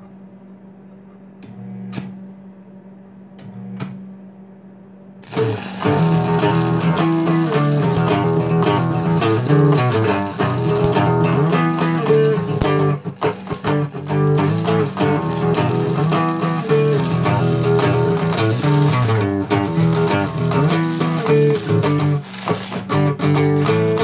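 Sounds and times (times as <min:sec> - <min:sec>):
guitar-led music: 0:05.2 - 0:24.0.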